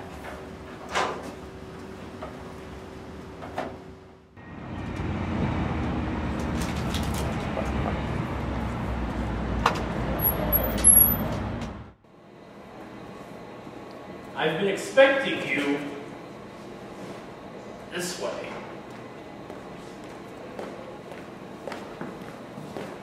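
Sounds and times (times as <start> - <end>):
wind: 4.4 - 11.9
distant traffic: 4.4 - 12.0.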